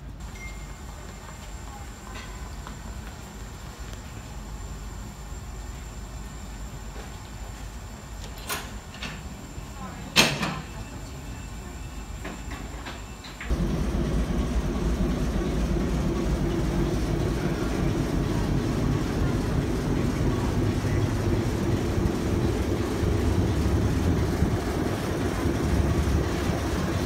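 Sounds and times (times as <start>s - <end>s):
diesel locomotive engine idling: 13.5s - 27.0s.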